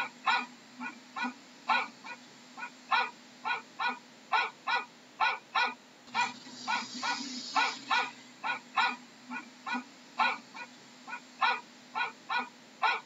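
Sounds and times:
dog barking harshly: 0:00.0 - 0:13.0
hiss: 0:06.1 - 0:11.2.

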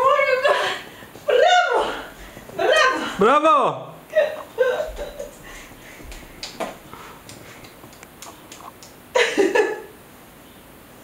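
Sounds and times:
toddler clapping hands: 0:06.1 - 0:09.0.

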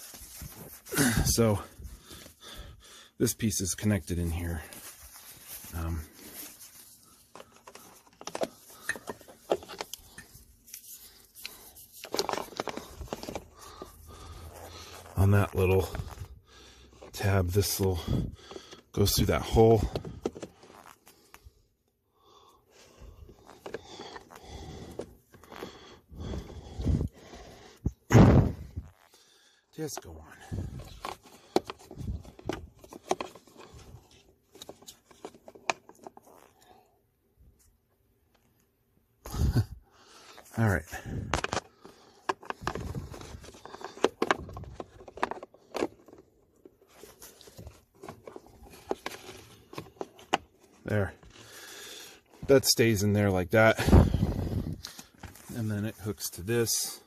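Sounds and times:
plastic parts clicking and scraping: 0:04.8 - 0:16.3, 0:18.5 - 0:21.0, 0:23.3 - 0:27.2, 0:29.8 - 0:36.7, 0:40.3 - 0:51.7.

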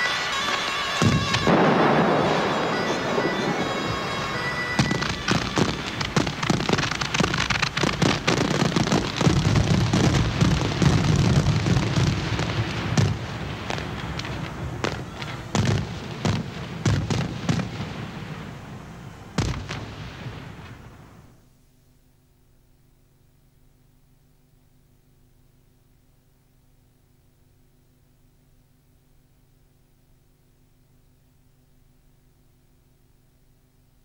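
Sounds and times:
fireworks crackling and popping: 0:00.0 - 0:21.4.

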